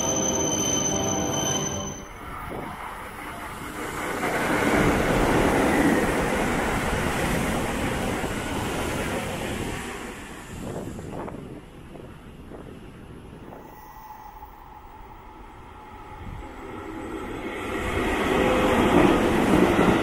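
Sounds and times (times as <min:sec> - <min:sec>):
train passing by rumbling: 0:00.0 - 0:20.0.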